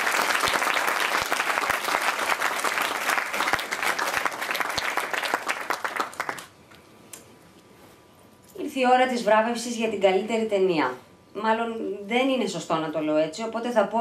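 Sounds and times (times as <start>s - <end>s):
audience applauding: 0.0s - 6.6s.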